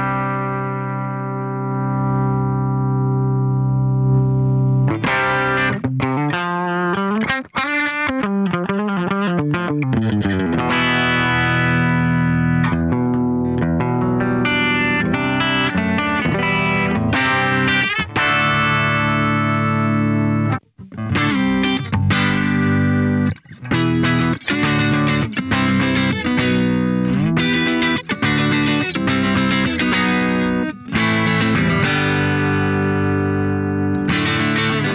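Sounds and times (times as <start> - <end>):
electric guitar: 0.0 - 34.9.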